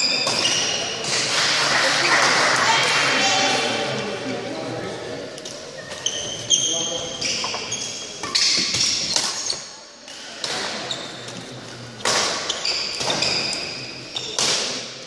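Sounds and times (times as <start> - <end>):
shoes squeaking on wooden floor: 5.7 - 9.7
racket hits and thuds: 12.0 - 13.4.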